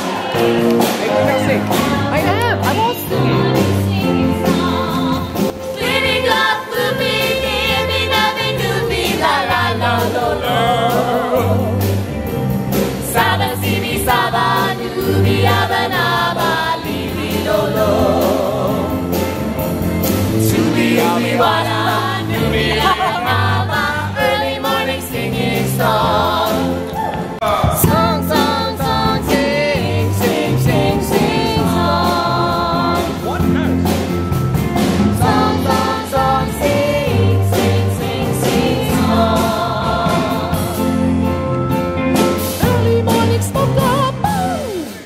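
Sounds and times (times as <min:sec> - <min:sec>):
live rock band: 0:00.0 - 0:45.0
group singing in chorus: 0:03.1 - 0:12.0, 0:13.0 - 0:33.3, 0:34.8 - 0:41.4.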